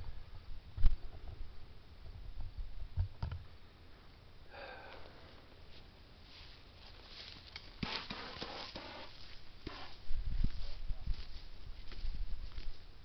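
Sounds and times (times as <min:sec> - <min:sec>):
footsteps in grass: 0:05.0 - 0:13.0
rustling in grass: 0:05.0 - 0:13.0.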